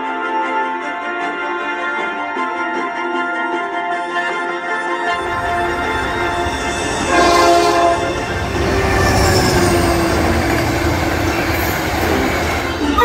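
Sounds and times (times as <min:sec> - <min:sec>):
locomotive air horn chord: 0:00.0 - 0:13.0
diesel locomotive rumbling past: 0:05.1 - 0:13.0.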